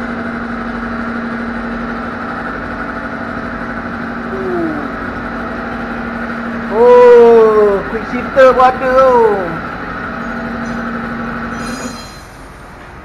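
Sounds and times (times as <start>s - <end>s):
motor humming: 0.0s - 12.3s.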